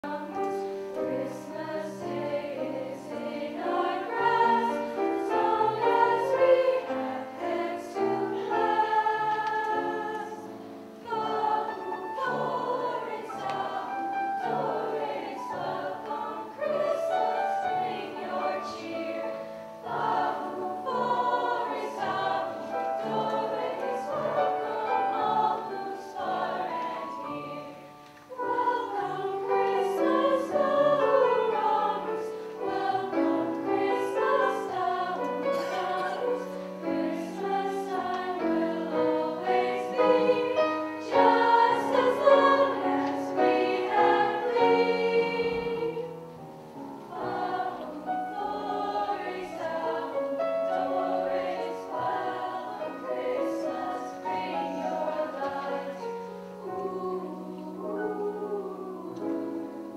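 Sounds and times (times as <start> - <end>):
girls' choir singing: 0.0 - 59.9
piano accompaniment: 0.0 - 59.9.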